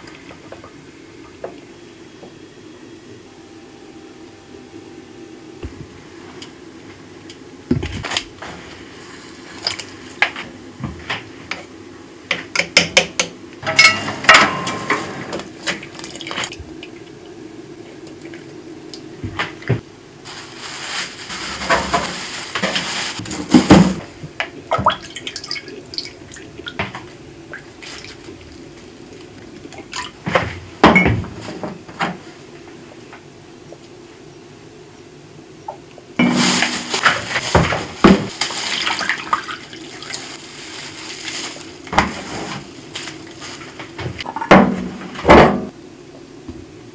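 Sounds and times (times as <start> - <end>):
steady low hum: 0.0 - 12.3.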